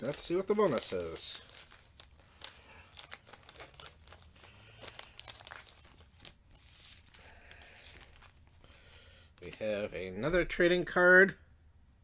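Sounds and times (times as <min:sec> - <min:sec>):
paper rustling and crinkling: 0:00.0 - 0:09.6.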